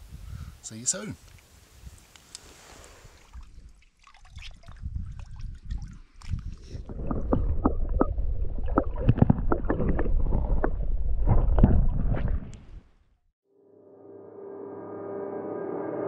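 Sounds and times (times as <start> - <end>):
underwater clicks and pops: 5.6 - 12.7.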